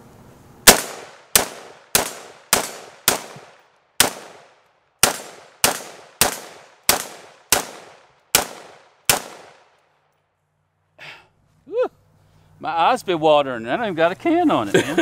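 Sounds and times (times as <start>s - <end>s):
rifle shots with echo: 0.6s - 9.8s.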